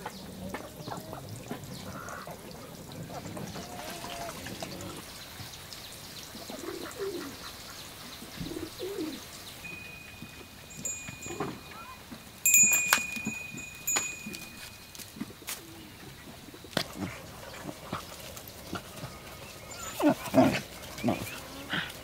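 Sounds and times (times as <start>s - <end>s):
high steady tone: 9.7s - 15.1s
puppies growling and yipping: 15.8s - 22.0s.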